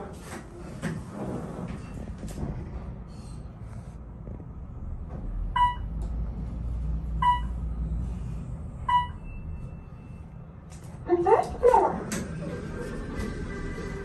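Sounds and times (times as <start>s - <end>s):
elevator rumble: 0.0s - 14.0s.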